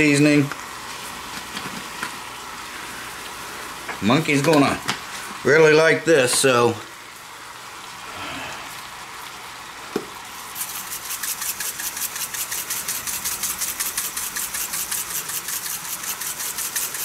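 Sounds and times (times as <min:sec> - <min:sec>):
faint sizzle from wok: 0:00.0 - 0:04.1, 0:04.8 - 0:11.7
seasoning shaker rattling: 0:10.4 - 0:17.0.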